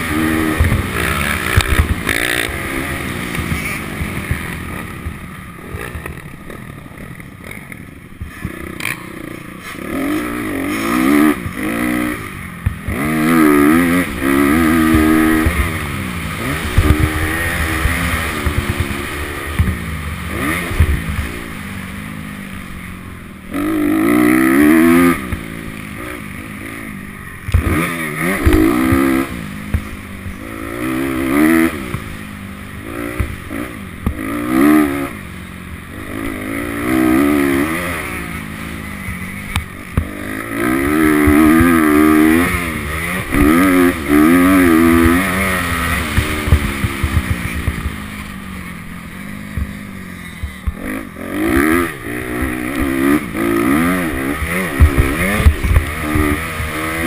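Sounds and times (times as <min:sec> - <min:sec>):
motorcycle engine revving: 0:00.0 - 0:57.0
knocks from bumps: 0:45.9 - 0:48.0.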